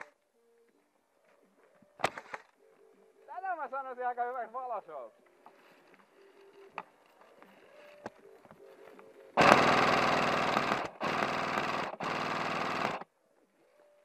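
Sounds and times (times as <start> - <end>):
airsoft gun firing full auto: 9.4 - 13.1.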